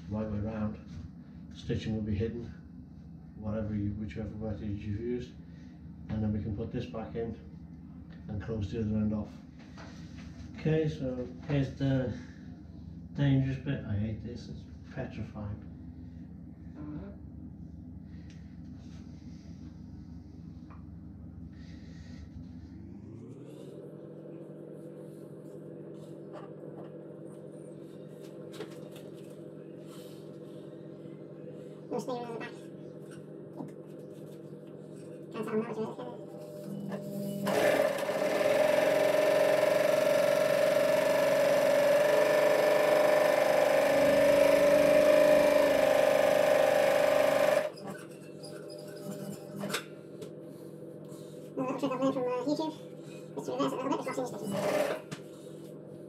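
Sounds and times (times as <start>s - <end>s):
sewing machine motor humming: 36.4s - 47.9s, 54.3s - 55.6s.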